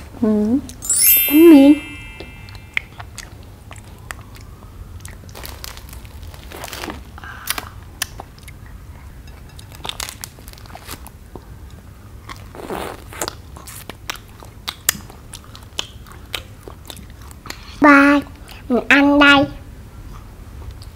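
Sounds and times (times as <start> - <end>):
chewing: 12.3 - 17.7.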